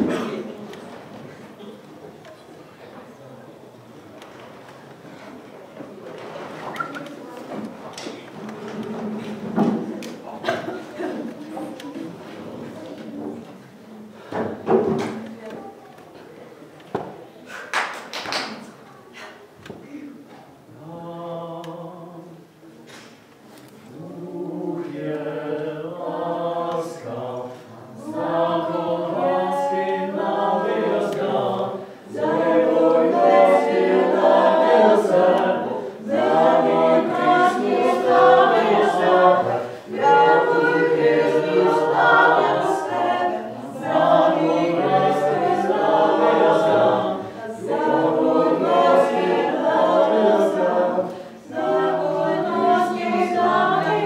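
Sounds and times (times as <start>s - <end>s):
group singing a cappella: 0.0s - 0.4s, 20.6s - 22.5s, 23.8s - 54.0s.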